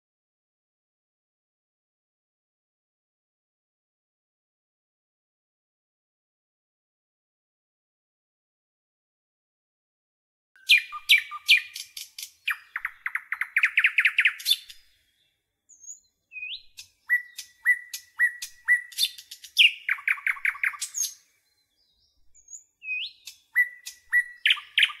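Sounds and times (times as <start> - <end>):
songbird singing: 10.6 - 25.0.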